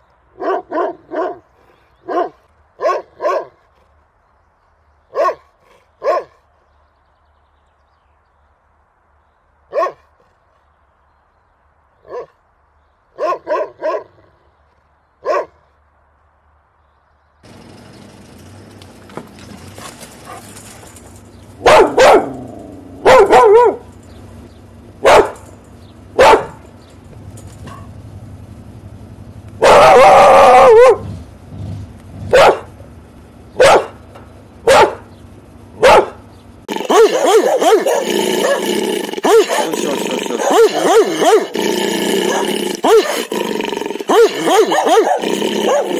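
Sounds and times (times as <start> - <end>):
steady background noise: 0.0 - 45.9
large dog barking: 0.4 - 3.8, 5.1 - 6.5, 9.7 - 10.2, 12.0 - 12.4, 13.1 - 14.3, 15.2 - 15.6, 19.5 - 27.0, 29.6 - 31.3, 32.2 - 32.8, 33.6 - 35.2, 35.8 - 45.9
second dog barking louder: 36.8 - 41.6, 44.1 - 45.9.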